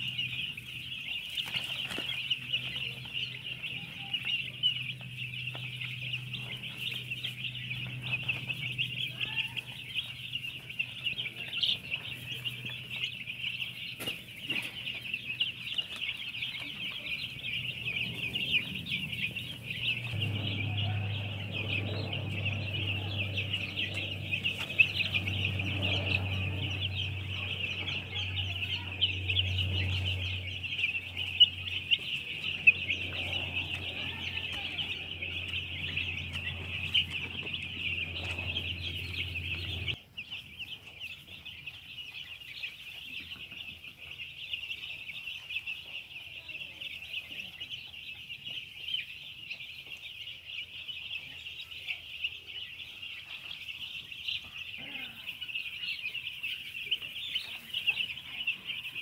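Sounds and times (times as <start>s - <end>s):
low steady hum: 0.0s - 40.0s
chicks peeping: 0.0s - 59.0s.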